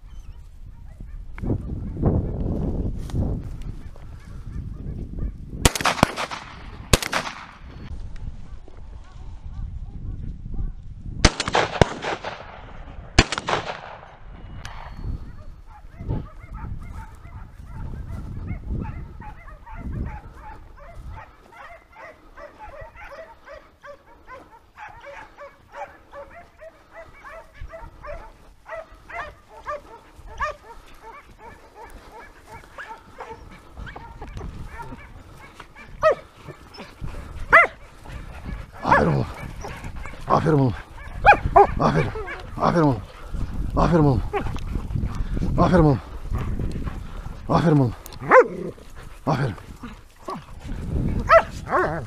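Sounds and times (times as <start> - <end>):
hounds baying and barking: 0.0 - 2.4, 3.6 - 5.5, 14.0 - 52.0
shotgun shots echoing: 5.6 - 7.8, 11.2 - 14.9.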